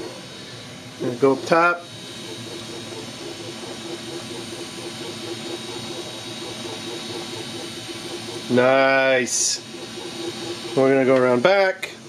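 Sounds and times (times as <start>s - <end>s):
cooling fan hiss with whine: 0.0s - 12.0s
pulsing motor hum: 0.0s - 12.0s.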